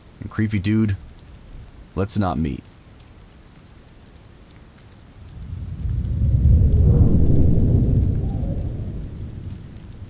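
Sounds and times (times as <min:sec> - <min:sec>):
steady rain: 0:00.0 - 0:10.0
thunder rolling: 0:05.1 - 0:10.0.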